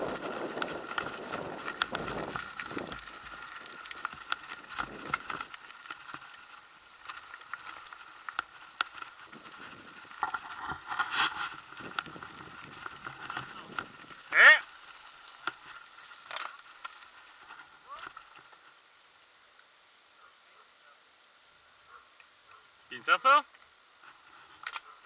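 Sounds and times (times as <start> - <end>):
wind buffeting microphone: 0.0 - 5.6, 9.1 - 14.4
mountain bike rattling on stony track: 0.0 - 18.7.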